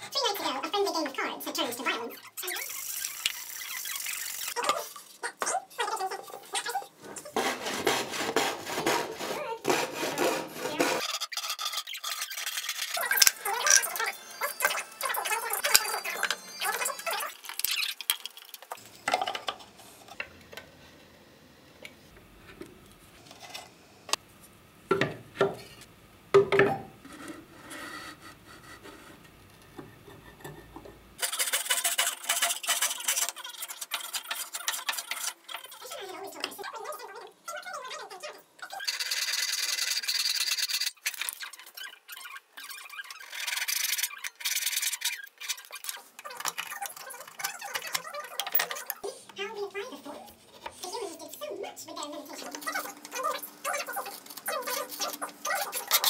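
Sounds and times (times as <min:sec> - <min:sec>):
hand plane strokes on wood: 0:07.2 - 0:11.0
rasp strokes on wood: 0:07.2 - 0:11.0.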